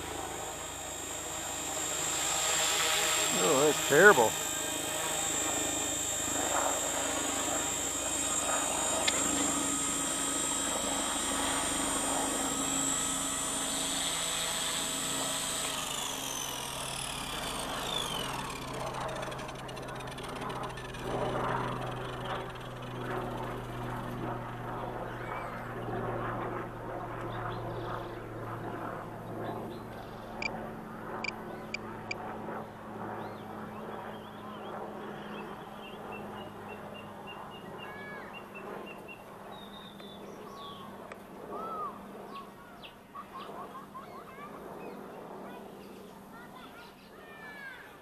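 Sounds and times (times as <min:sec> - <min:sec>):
small helicopter rotor whirring: 0:00.0 - 0:48.0.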